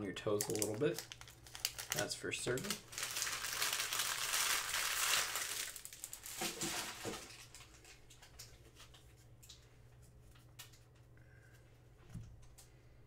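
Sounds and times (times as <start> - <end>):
wrappers crinkling: 0.4 - 9.0.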